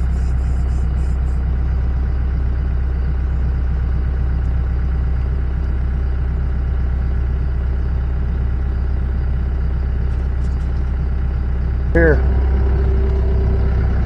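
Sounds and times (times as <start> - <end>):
motor droning: 0.0 - 14.0.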